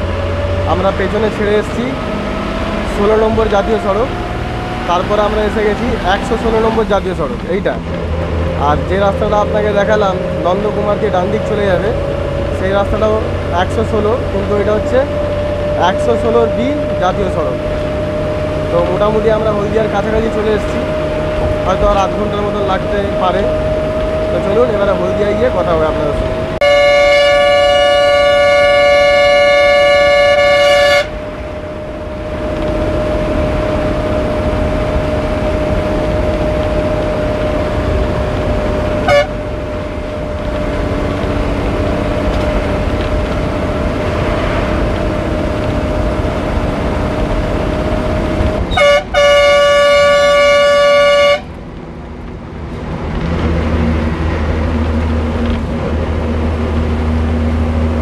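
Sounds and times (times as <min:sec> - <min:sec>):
bus engine and road noise: 0:00.0 - 0:58.0
bus horn blasts: 0:26.6 - 0:31.4, 0:38.9 - 0:39.6, 0:48.7 - 0:51.6.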